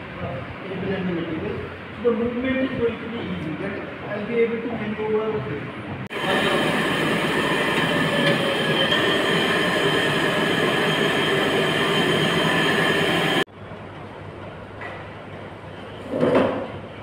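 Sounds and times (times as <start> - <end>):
band knife cutting machine whine: 6.1 - 13.5.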